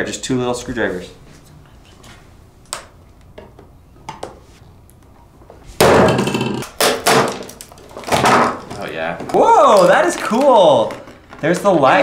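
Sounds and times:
plastic cracking and snapping: 6.6 - 12.0.

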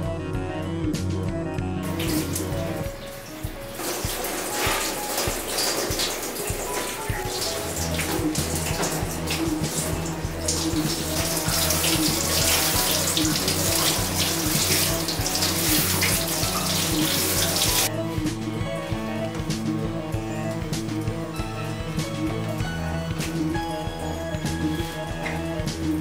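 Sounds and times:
background music with bass line: 0.0 - 26.0
water splashing over wet dog: 1.9 - 17.9.

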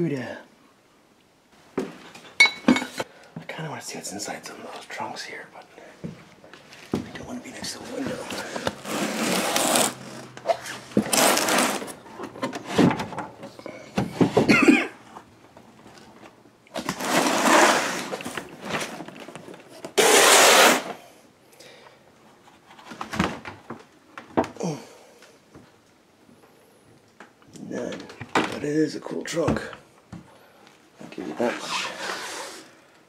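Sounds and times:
wooden drawers scraping open: 7.8 - 13.3, 16.8 - 19.0.

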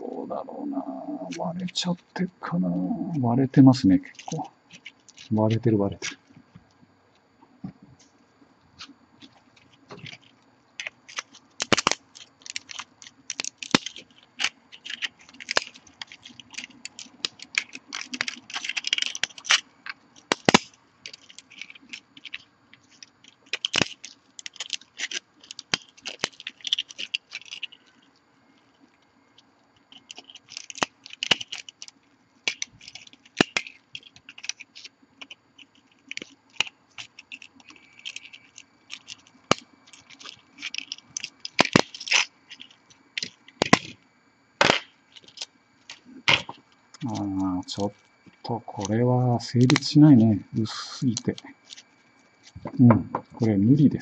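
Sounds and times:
plastic scraping and crunching: 4.0 - 6.4, 8.8 - 44.0, 44.6 - 50.0, 51.0 - 53.5
plastic cracking and snapping: 9.2 - 44.0, 44.6 - 49.0, 49.6 - 50.0, 51.1 - 53.5.

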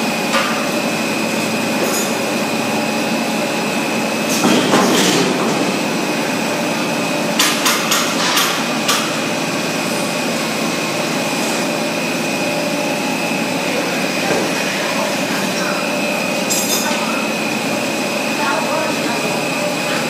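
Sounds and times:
machine drone with high whine: 0.0 - 20.0.

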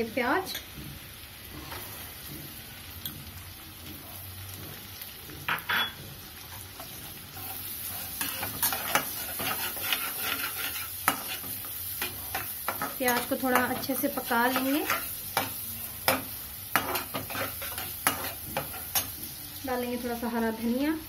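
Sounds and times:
onions sizzling in butter: 0.0 - 21.0
metal spatula scraping pan: 6.5 - 19.2.

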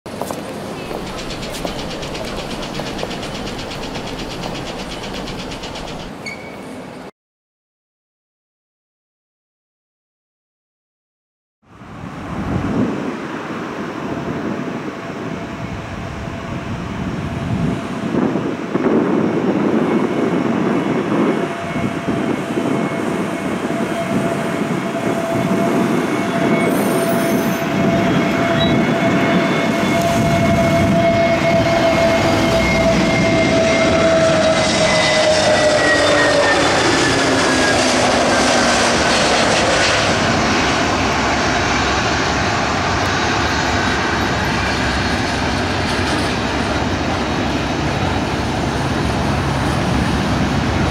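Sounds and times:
airliner jet engine whine: 0.1 - 7.1, 11.7 - 50.9.

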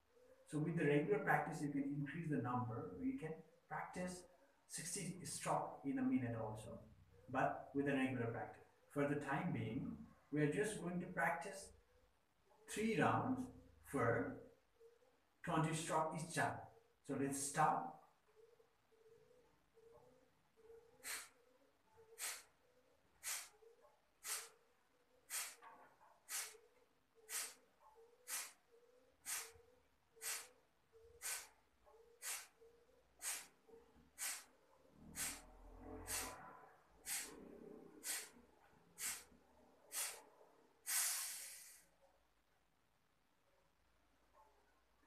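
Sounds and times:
forceful nasal exhalations: 21.0 - 21.4, 22.1 - 22.6, 23.2 - 23.6, 24.2 - 28.6, 29.2 - 32.6, 33.2 - 42.0.

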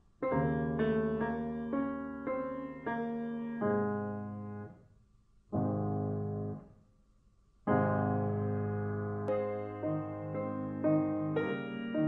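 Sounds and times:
slow piano chords: 0.0 - 4.9, 5.5 - 6.8, 7.6 - 12.0.

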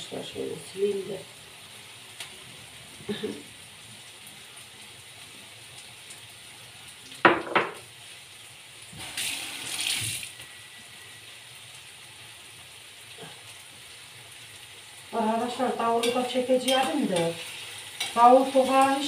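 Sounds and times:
glass bowl knocking on counter: 7.3 - 7.8
kitchen tap running: 9.0 - 10.4.

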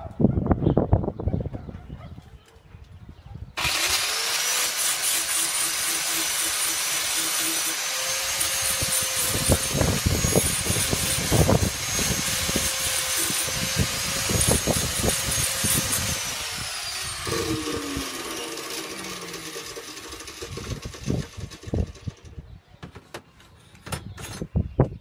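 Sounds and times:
power tool motor whine: 3.6 - 22.1
crackling and rasping: 3.6 - 22.2.

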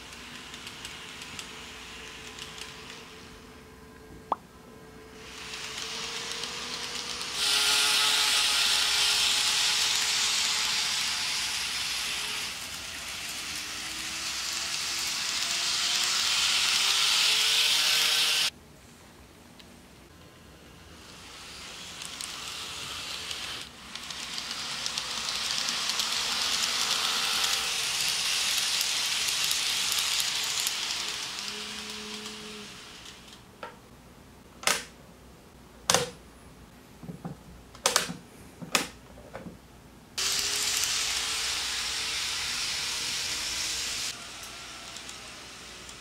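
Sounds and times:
model train motor whirr: 0.0 - 3.3, 5.2 - 18.5, 20.8 - 33.4, 40.2 - 46.0.

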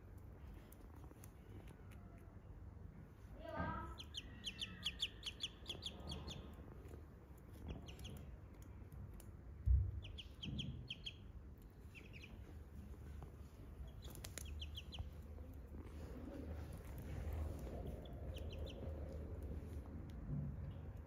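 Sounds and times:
ducklings peeping: 3.9 - 8.7, 9.6 - 21.0.

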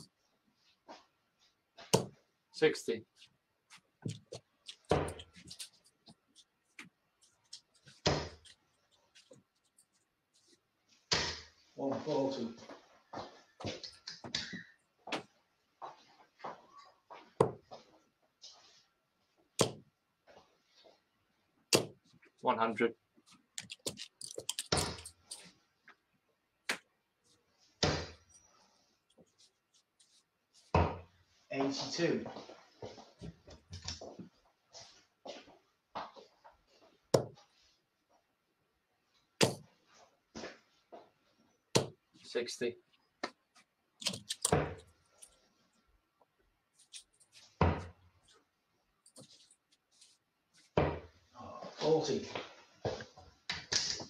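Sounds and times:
darts thudding into dartboard: 19.6 - 19.8, 39.4 - 39.7.

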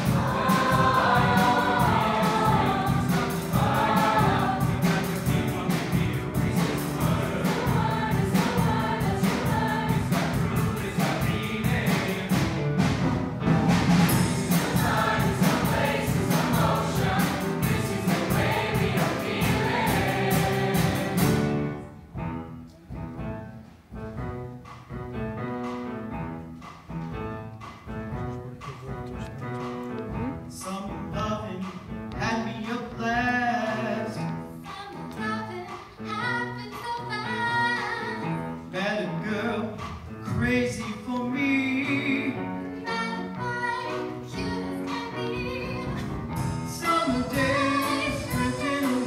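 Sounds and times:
mixed choir singing: 0.0 - 12.8, 14.0 - 21.8, 46.4 - 49.0
piano accompaniment: 0.0 - 49.0.

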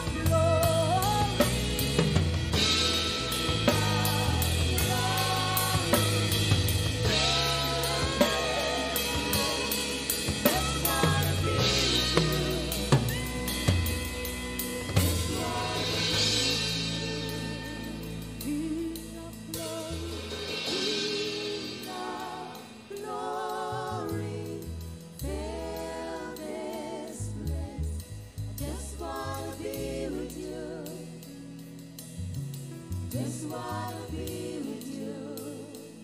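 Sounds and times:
band with keyboards guitar and drums: 0.0 - 36.0
woman singing with vibrato: 2.6 - 14.0, 14.6 - 24.7.

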